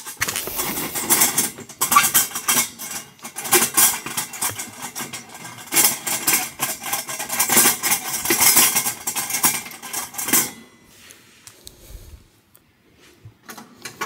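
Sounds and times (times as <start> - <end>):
metal clicking and rattling: 0.0 - 10.5.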